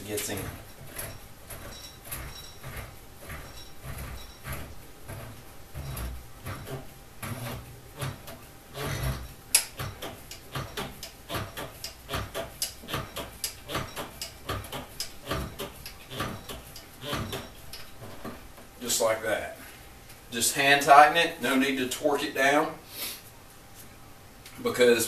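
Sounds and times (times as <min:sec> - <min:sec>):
metal tube threading clicks: 0:00.1 - 0:17.9.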